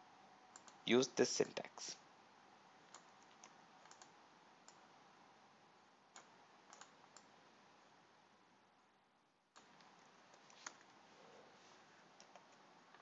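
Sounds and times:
room hiss: 0.0s - 13.0s
computer mouse and keyboard clicks: 2.9s - 4.8s, 6.2s - 7.3s, 9.6s - 11.0s, 12.2s - 13.0s.

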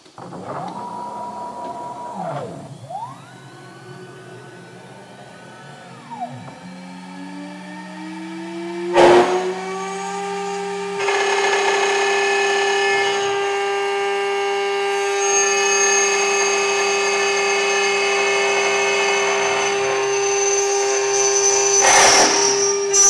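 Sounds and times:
end mill cutting metal: 0.0s - 23.0s
spindle motor whining: 0.0s - 23.0s.

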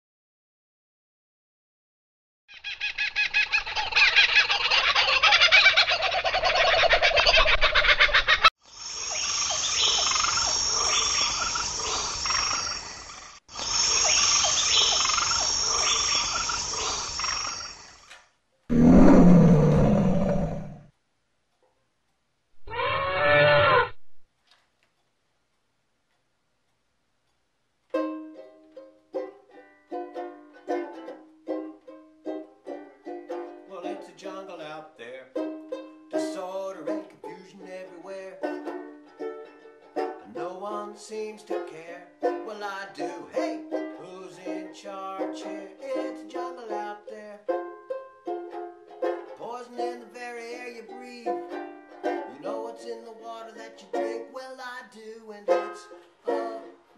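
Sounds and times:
pitch-bending animal call: 2.5s - 18.1s, 18.7s - 20.9s, 22.6s - 24.2s
dense high chirping: 8.6s - 18.1s, 18.7s - 20.9s
fast croaking trill: 8.6s - 18.1s
low-pitched animal call: 18.7s - 20.9s, 22.6s - 24.2s
banjo ukulele picking notes: 27.9s - 56.9s.

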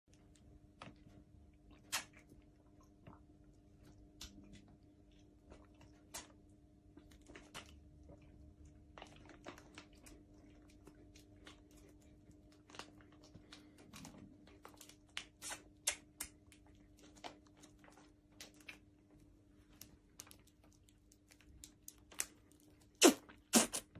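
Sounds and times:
faint steady hum: 0.1s - 23.9s
plastic packaging crinkling: 9.0s - 15.8s.

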